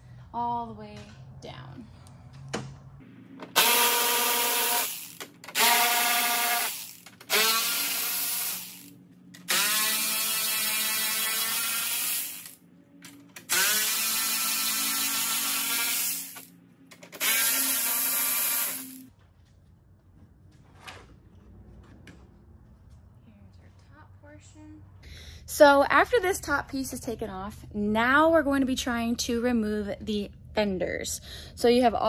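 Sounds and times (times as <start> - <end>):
cordless power tool running: 3.4 - 12.6, 13.4 - 16.5, 17.1 - 19.1.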